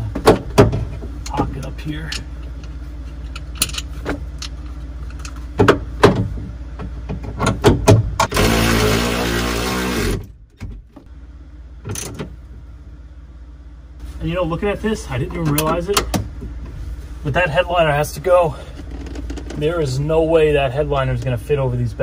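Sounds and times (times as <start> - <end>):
power tool driving a bolt: 8.2 - 10.3.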